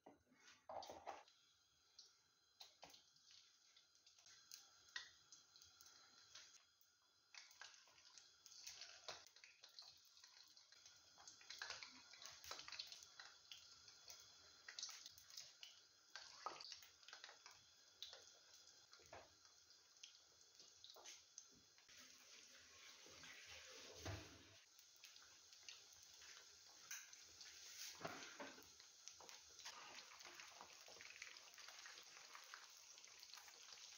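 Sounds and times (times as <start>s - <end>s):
wings deep-frying in oil: 0.6s - 33.9s.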